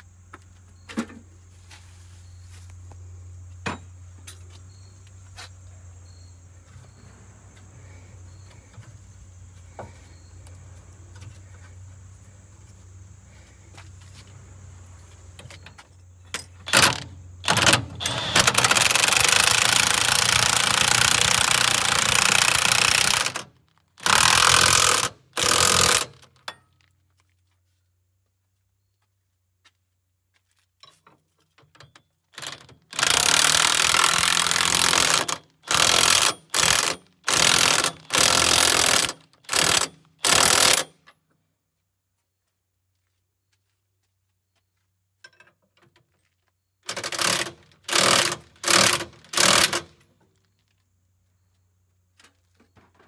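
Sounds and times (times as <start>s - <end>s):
impact wrench hammering: 16.4s - 26.6s, 32.4s - 41.0s, 46.9s - 50.0s.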